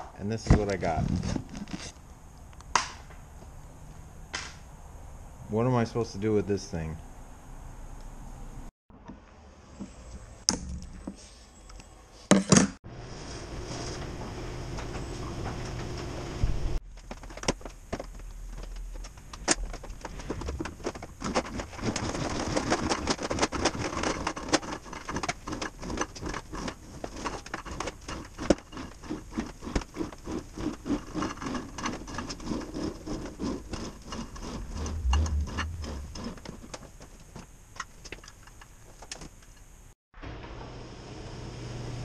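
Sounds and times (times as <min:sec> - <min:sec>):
wire rope clicking and rattling: 0:16.9 - 0:37.3.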